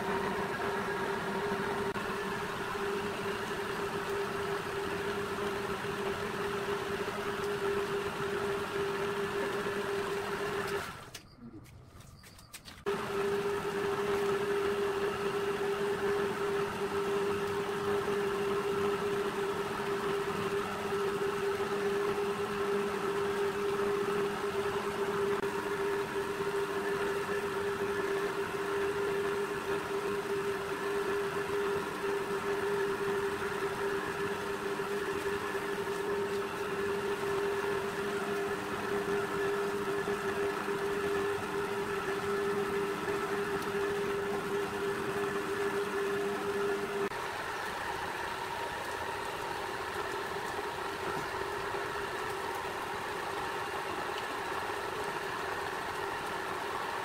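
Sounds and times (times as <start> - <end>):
pipe-rolling machine humming: 0.0 - 11.2, 12.8 - 57.0.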